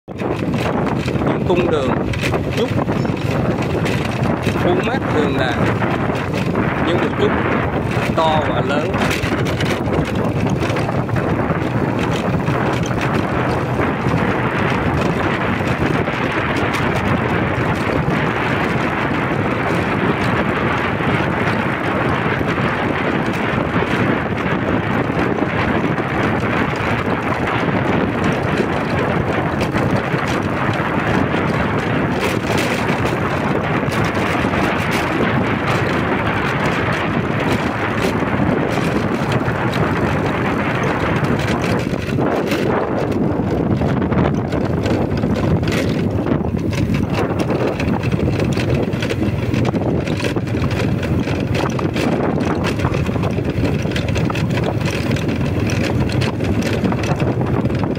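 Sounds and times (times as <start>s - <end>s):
rushing wind on microphone: 0.0s - 57.9s.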